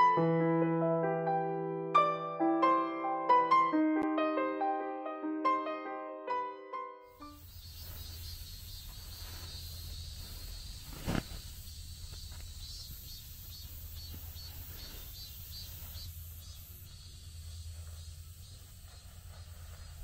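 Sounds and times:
insects chirping: 0:07.1 - 0:20.0
steady low rumble: 0:15.7 - 0:20.0.

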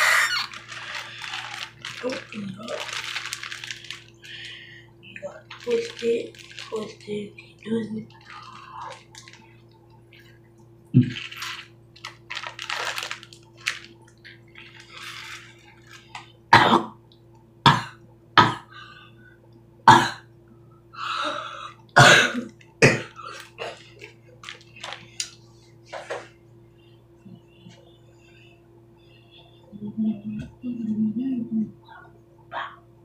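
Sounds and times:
plastic bag rustling and crinkling: 0:00.0 - 0:09.6, 0:11.0 - 0:16.4, 0:23.2 - 0:26.3
plastic bag crackles: 0:00.0 - 0:10.4, 0:11.0 - 0:16.4, 0:23.1 - 0:25.5.

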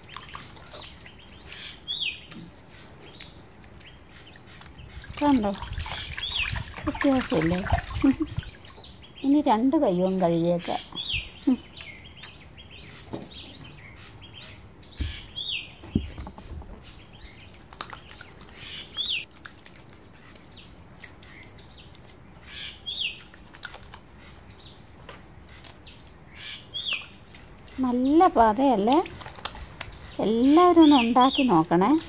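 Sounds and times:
bird chirping: 0:00.0 - 0:19.3, 0:20.2 - 0:32.0
soft low thumps: 0:15.0 - 0:16.8.

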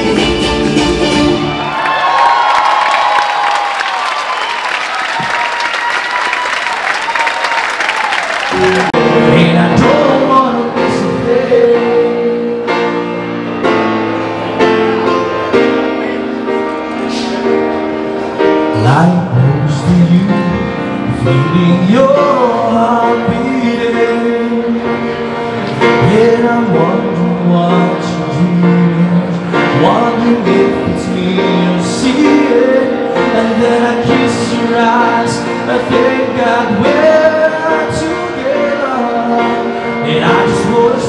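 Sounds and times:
grand piano playing: 0:00.0 - 0:02.5, 0:08.4 - 0:41.0
audience applause: 0:01.5 - 0:09.0
man singing into a microphone: 0:08.5 - 0:13.2, 0:18.6 - 0:41.0.

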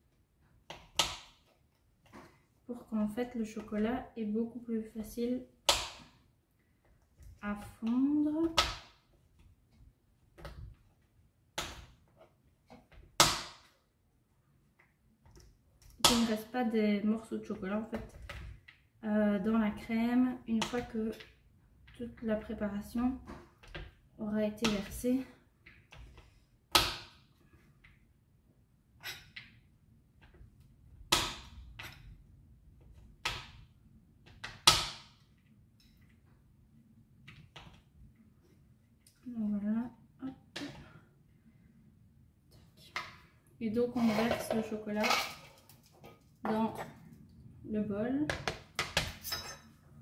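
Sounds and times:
knife chopping chocolate on board: 0:00.7 - 0:01.5, 0:05.6 - 0:06.1.

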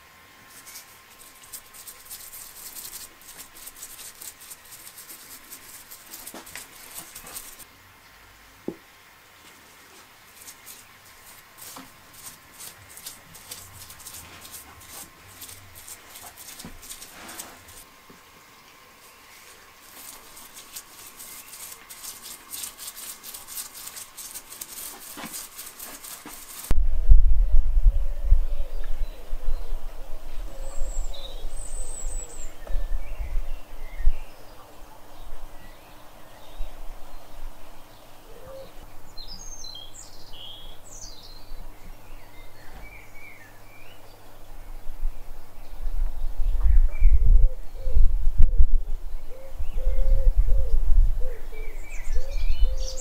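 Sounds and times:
faint steady hum: 0:00.0 - 0:53.0
brush spreading liquid on wood: 0:00.5 - 0:07.7, 0:09.4 - 0:18.3, 0:18.9 - 0:26.8
paintbrush scrubbing on wood: 0:00.5 - 0:07.7, 0:09.5 - 0:17.9, 0:18.9 - 0:26.8
loud low rumble: 0:26.7 - 0:30.6.

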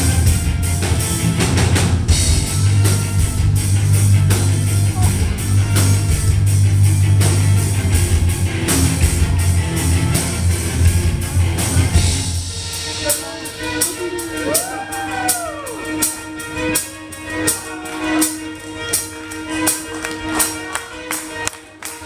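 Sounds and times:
heavy bass and drums: 0:00.0 - 0:16.8
violin: 0:00.0 - 0:22.0.

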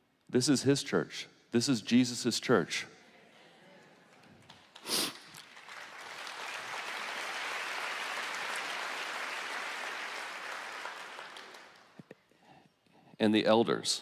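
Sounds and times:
congregation applauding: 0:04.1 - 0:12.0.

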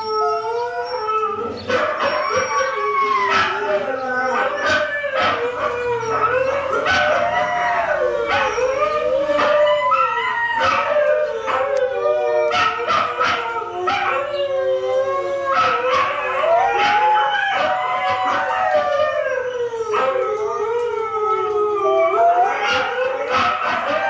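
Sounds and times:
dogs howling: 0:00.0 - 0:24.0
dog yips: 0:00.9 - 0:11.8.

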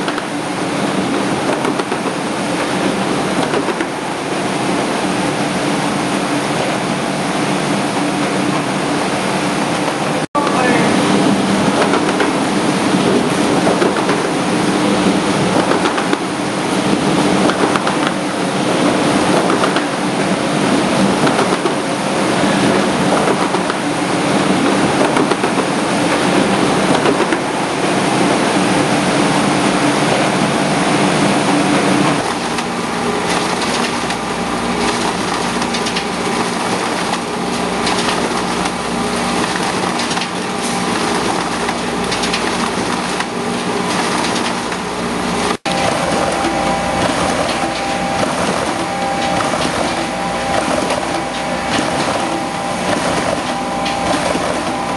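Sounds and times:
machine clattering and humming: 0:00.0 - 0:54.9.

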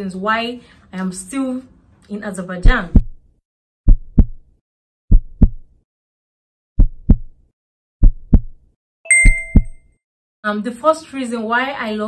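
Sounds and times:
heartbeat thumps: 0:02.7 - 0:03.3, 0:03.9 - 0:04.5, 0:05.1 - 0:05.7, 0:06.8 - 0:07.4, 0:08.0 - 0:08.7.

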